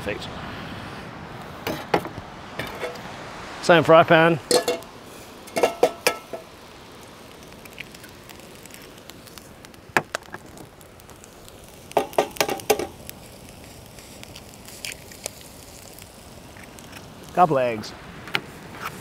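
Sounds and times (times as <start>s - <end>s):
steady low hiss: 0.0s - 19.0s
metallic clinks of cooking utensils: 4.5s - 4.8s, 5.5s - 6.4s.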